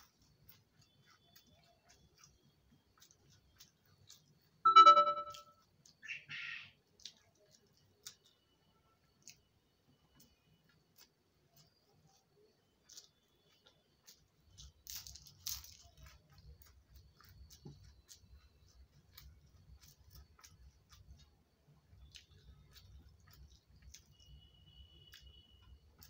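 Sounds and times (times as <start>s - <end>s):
chewing: 0.0s - 4.6s, 6.8s - 26.0s
fingers mixing rice on steel plate: 0.0s - 4.6s.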